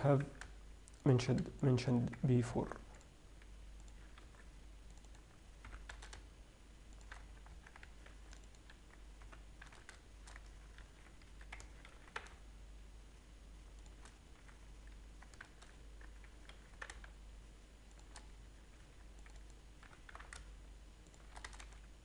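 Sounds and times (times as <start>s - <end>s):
low steady hum: 0.0s - 22.0s
keyboard and mouse clicks: 0.2s - 2.3s, 3.8s - 6.2s, 6.9s - 12.4s, 13.7s - 17.2s, 17.9s - 18.3s, 19.2s - 21.9s.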